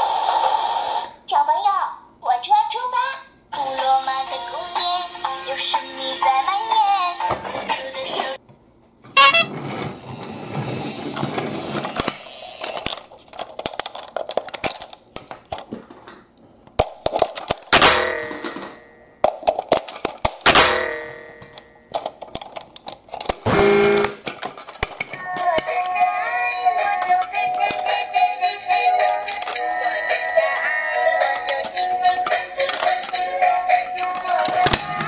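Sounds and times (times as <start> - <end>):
toy horn sound: 9.2 - 9.6, 23.5 - 24.2
plastic toy clicks and knocks: 11.2 - 15.9, 16.8 - 26.1, 26.7 - 28.2, 28.8 - 35.0.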